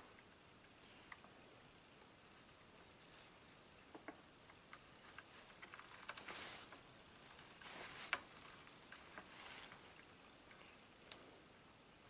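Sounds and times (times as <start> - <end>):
soft handling swishes: 6.2 - 10.0.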